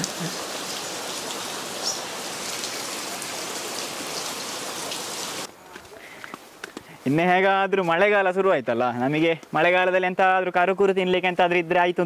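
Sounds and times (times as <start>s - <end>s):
rain on a tiled roof: 0.0s - 5.5s
water drips: 0.0s - 5.5s.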